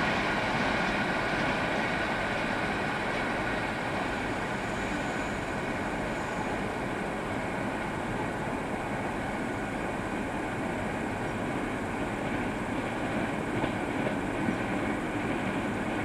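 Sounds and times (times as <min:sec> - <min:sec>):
train wheels on rails: 0:00.0 - 0:16.0.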